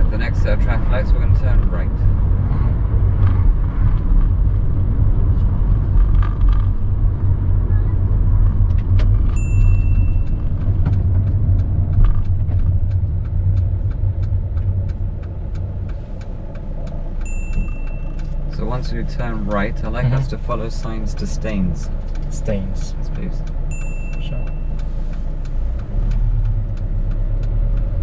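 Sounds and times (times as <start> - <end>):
car engine and road rumble: 0.0 - 28.0
turn indicator ticking: 0.0 - 28.0
short high beep: 9.4 - 10.4, 17.3 - 18.2, 23.7 - 24.8.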